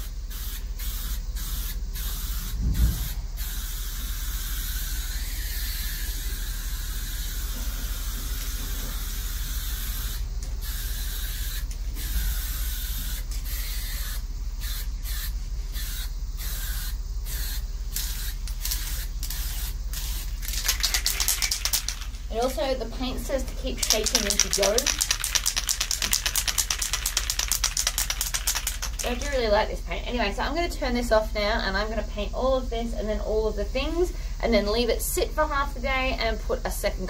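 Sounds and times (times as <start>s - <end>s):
spray can hissing: 0.0s - 29.5s
low thump: 2.5s - 3.4s.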